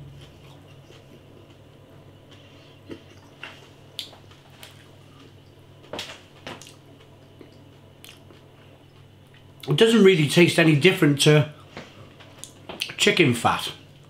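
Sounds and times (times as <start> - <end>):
faint low hum: 0.0 - 14.0
person eating wet clicks: 2.8 - 4.9, 6.5 - 9.7, 12.4 - 13.0.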